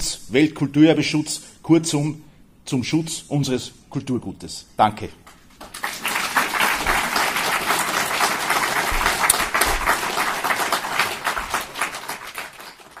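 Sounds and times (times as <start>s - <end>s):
audience applauding: 5.6s - 13.0s.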